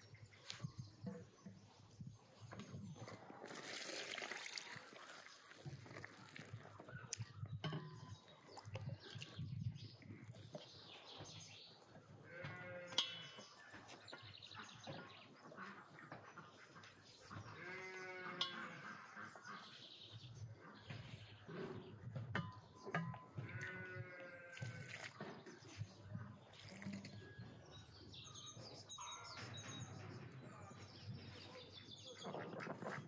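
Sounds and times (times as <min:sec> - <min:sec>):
livestock bleating: 0:12.2 - 0:13.2, 0:17.5 - 0:19.1, 0:23.4 - 0:24.9.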